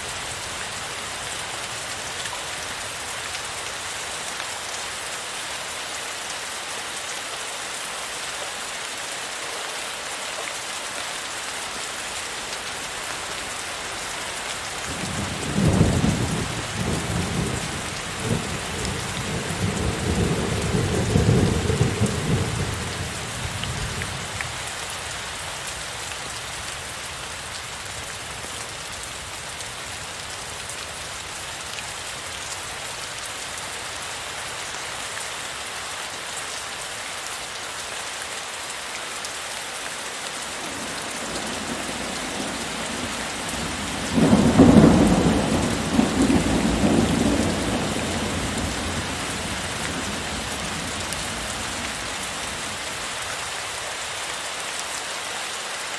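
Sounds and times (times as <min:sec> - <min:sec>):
heavy rain falling: 0:00.0 - 0:55.9
thunder rumbling: 0:42.9 - 0:50.8.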